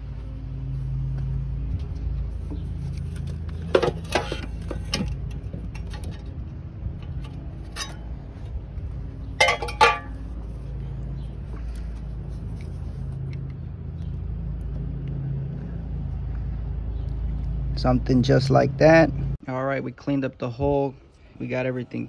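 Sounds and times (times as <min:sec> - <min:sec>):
metal pipe clinking: 0:07.0 - 0:08.2, 0:09.3 - 0:10.3.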